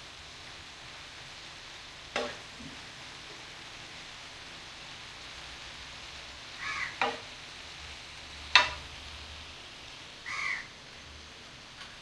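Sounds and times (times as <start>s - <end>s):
liver frying in oil: 0.0s - 12.0s
spatula striking pan: 2.2s - 2.5s, 7.0s - 7.3s, 8.5s - 8.9s
crow cawing: 6.6s - 7.0s, 10.2s - 10.7s.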